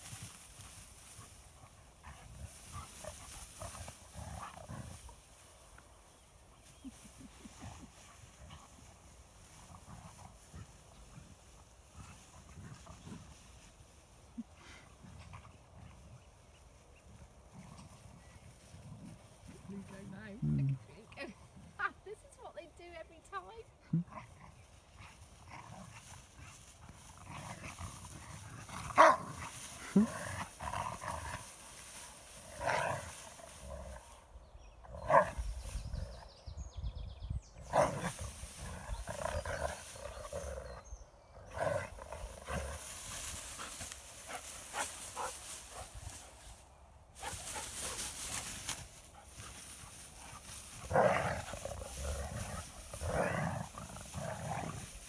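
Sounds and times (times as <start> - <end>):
dogs barking and growling: 23.8 - 34.2, 34.9 - 35.4, 37.6 - 46.5, 47.2 - 55.0.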